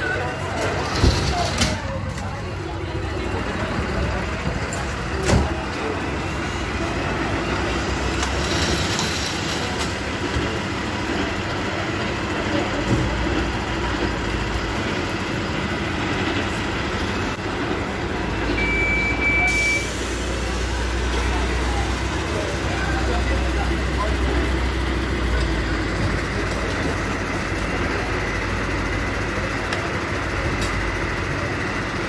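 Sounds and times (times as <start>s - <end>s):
diesel engine idling: 0.0s - 32.0s
short high beep: 18.6s - 20.0s.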